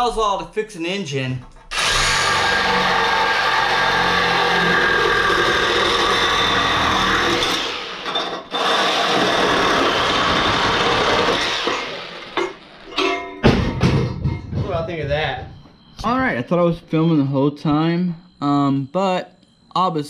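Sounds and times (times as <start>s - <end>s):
reciprocating saw cutting metal: 1.7s - 13.0s.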